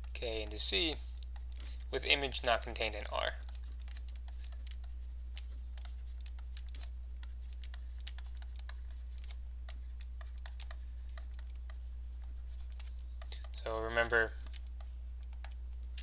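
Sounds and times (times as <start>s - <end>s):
steady low hum: 0.0s - 16.0s
stylus clicking on tablet: 3.4s - 16.0s.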